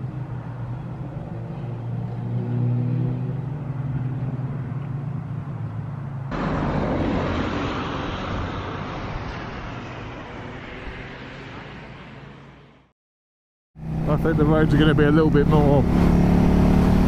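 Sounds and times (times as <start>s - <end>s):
rush of riding wind: 5.5s - 12.3s
motorcycle engine: 13.8s - 17.0s.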